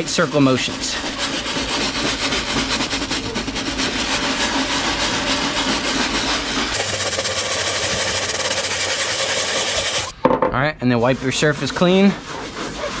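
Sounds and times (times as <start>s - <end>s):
scrub brush scrubbing deck: 0.0s - 10.1s, 11.0s - 13.0s.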